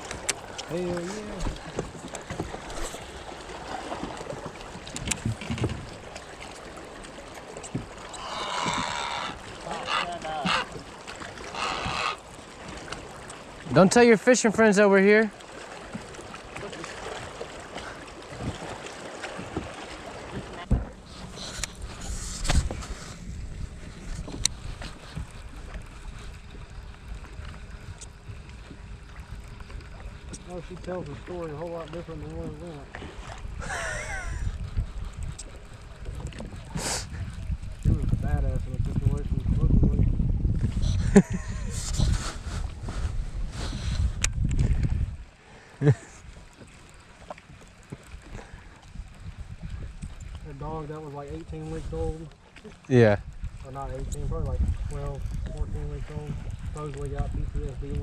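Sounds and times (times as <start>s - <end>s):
water lapping against boat hull: 0.0s - 58.0s
wind on microphone: 20.3s - 30.4s, 33.0s - 46.3s, 48.2s - 52.2s, 52.9s - 58.0s.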